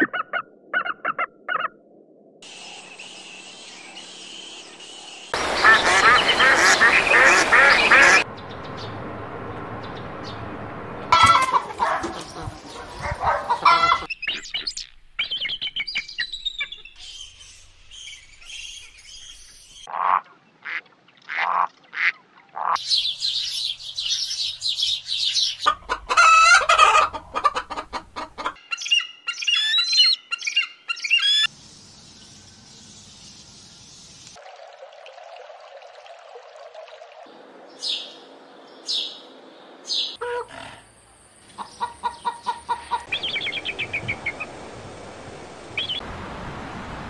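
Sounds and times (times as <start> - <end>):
flock of ducks calling: 5.4 - 8.2, 11.2 - 14.1
duck quacks: 11.2 - 14.1.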